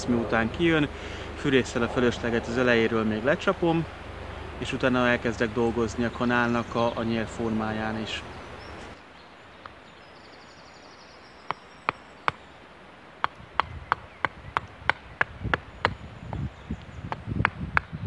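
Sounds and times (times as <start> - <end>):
hatchet chopping wood: 11.5 - 12.4, 13.2 - 18.0.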